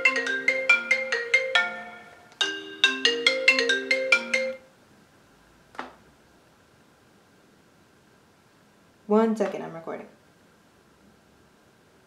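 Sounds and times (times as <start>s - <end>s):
marimba ringtone: 0.0s - 4.6s.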